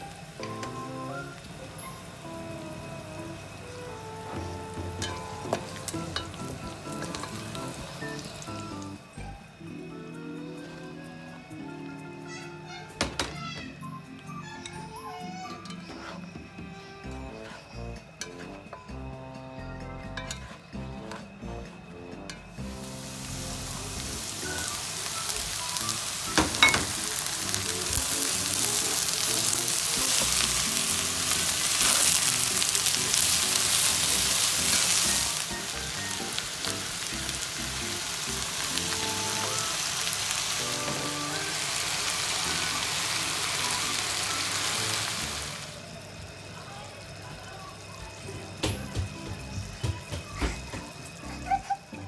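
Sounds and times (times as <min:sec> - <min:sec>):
vegetables sizzling in oil: 0:00.0 - 0:13.7, 0:14.3 - 0:52.0
spatula stirring in a pan: 0:15.4 - 0:19.0, 0:20.0 - 0:21.5.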